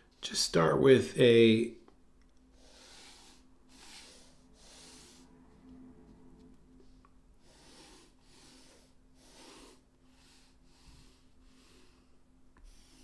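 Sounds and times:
faint steady hum: 0:00.0 - 0:13.0
colored pencil strokes on paper: 0:02.6 - 0:11.9.

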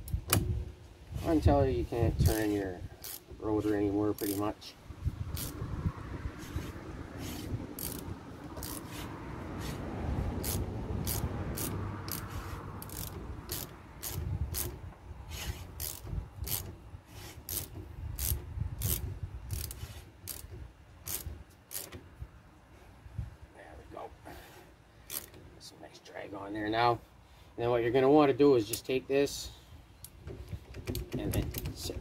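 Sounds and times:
brake rotor rubbing: 0:00.3 - 0:22.2, 0:24.4 - 0:25.7
ratchet clicking: 0:02.2 - 0:03.4, 0:04.1 - 0:04.5, 0:05.3 - 0:05.6, 0:06.5 - 0:09.0, 0:10.4 - 0:22.1, 0:25.1 - 0:25.4.

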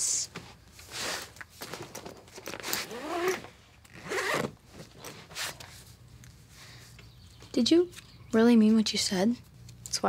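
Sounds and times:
zipper pulls: 0:02.5 - 0:05.6.

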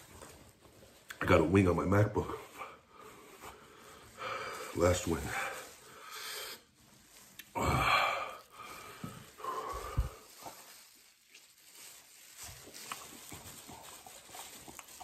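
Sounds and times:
man breathing: 0:02.5 - 0:06.9, 0:07.5 - 0:10.5
man wheezing breath: 0:07.5 - 0:10.4.

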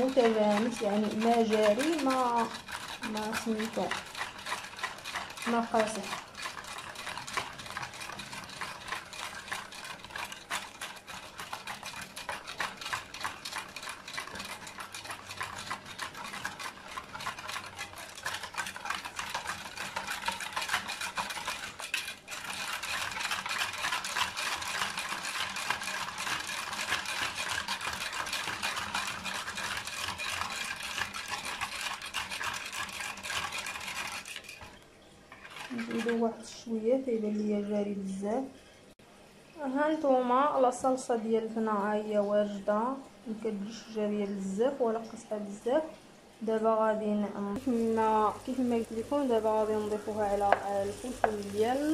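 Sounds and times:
whisk beating in plastic bowl: 0:00.0 - 0:34.8, 0:35.4 - 0:36.4, 0:47.6 - 0:51.9.

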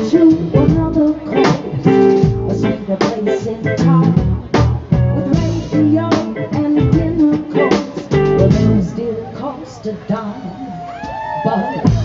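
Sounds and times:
drum kit beat: 0:00.0 - 0:08.9
live band playing: 0:00.0 - 0:12.0.

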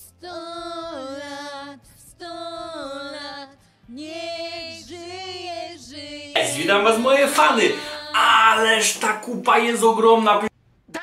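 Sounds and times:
man singing: 0:06.4 - 0:10.4.

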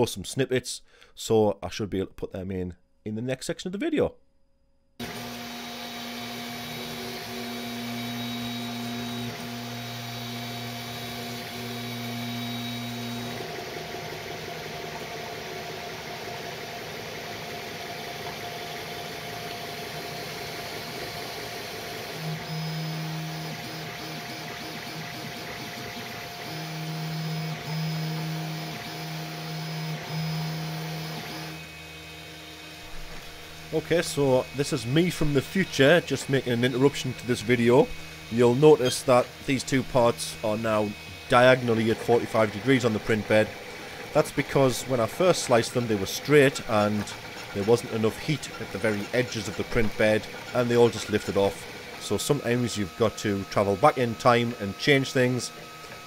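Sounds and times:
stepper motors whining: 0:05.0 - 0:56.0
cooling fans hissing: 0:33.6 - 0:55.8.

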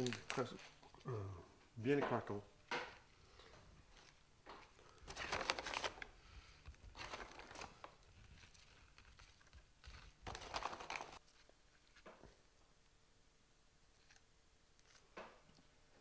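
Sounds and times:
plastic packaging crinkling: 0:00.0 - 0:00.8, 0:04.8 - 0:12.1.

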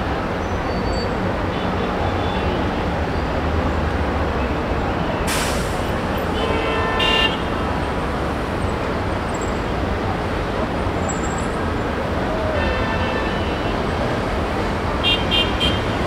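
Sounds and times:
heavy road traffic rumble: 0:00.0 - 0:16.0
brief hiss: 0:05.3 - 0:05.9
vehicle horn honking: 0:06.3 - 0:07.5, 0:15.0 - 0:16.0.

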